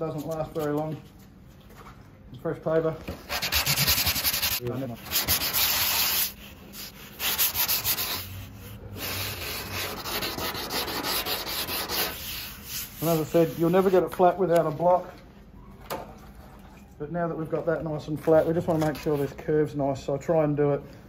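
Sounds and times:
hand sanding strokes: 3.3s - 14.9s.

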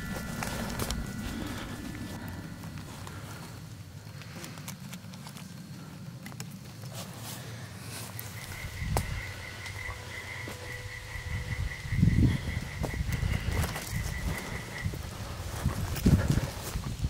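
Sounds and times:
pulsing high-pitched call: 0.0s - 3.6s, 8.4s - 15.0s
footsteps on wet forest floor: 0.0s - 5.8s.

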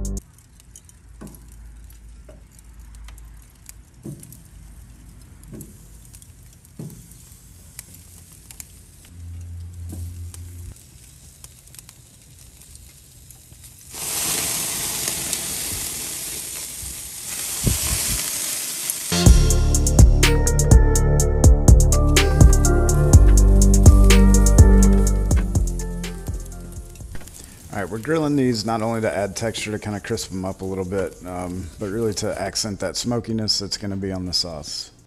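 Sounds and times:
wedges tapping onto grill grate: 0.7s - 3.2s, 4.0s - 4.5s, 5.4s - 5.9s, 6.7s - 7.1s
food sizzling on a grill: 4.0s - 9.1s, 9.8s - 19.3s.

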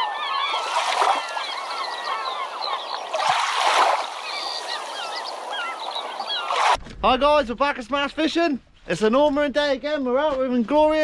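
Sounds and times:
flock of birds calling: 0.0s - 6.8s.

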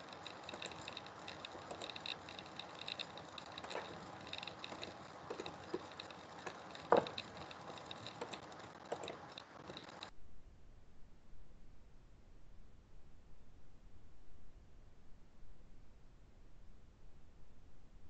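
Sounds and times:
computer mouse clicks: 0.0s - 10.1s
low steady hiss: 0.0s - 18.0s.

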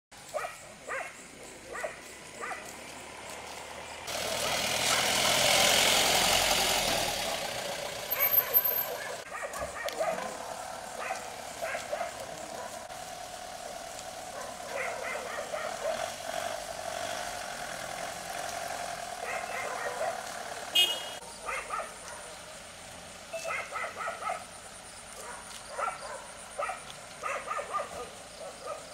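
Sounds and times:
vehicle driving past: 1.3s - 9.3s, 10.0s - 21.7s.

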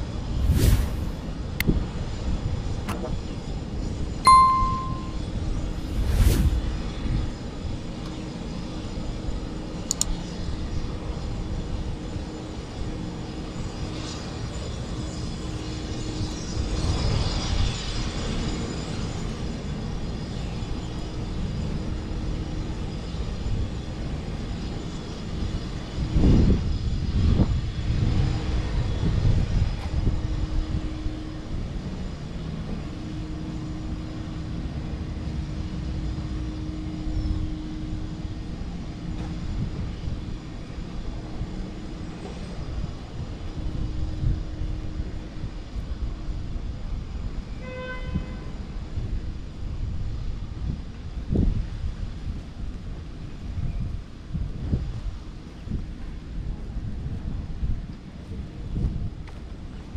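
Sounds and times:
low hum: 0.0s - 1.6s, 4.3s - 6.8s.

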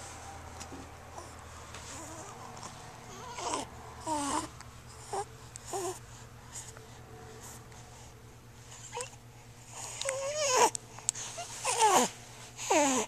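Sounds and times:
faint low hum: 0.0s - 13.0s
infant cooing: 3.1s - 6.0s, 9.8s - 10.8s, 11.4s - 13.0s.

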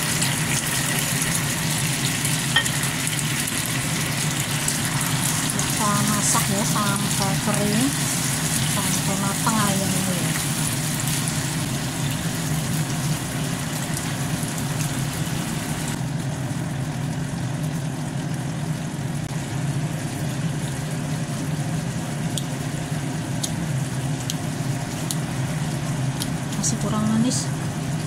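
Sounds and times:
food sizzling in a pan: 0.0s - 28.0s
low kitchen hum: 0.0s - 28.0s.

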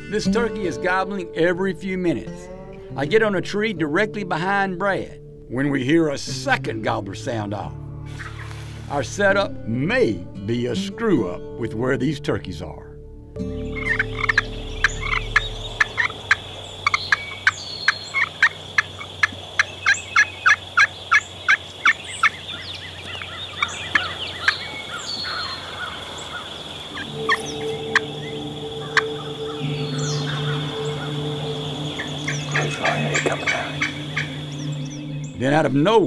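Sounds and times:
low steady drone: 13.0s - 19.1s, 25.6s - 35.7s
songbirds chirping: 13.4s - 36.0s
turkey call yelps and cuts: 13.8s - 28.0s, 32.0s - 34.4s.

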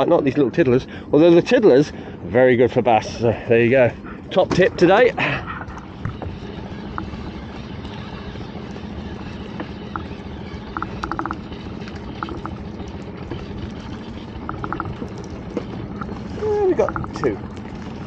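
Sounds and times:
boat engine idling: 0.0s - 18.0s
water sloshing against hull: 3.9s - 18.0s.

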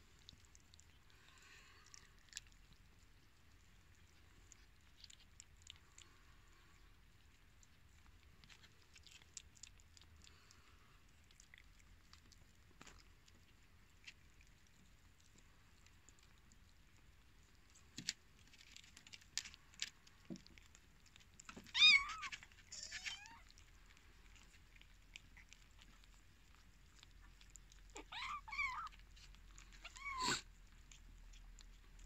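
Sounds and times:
cats meowing: 21.6s - 23.6s, 27.5s - 30.5s.

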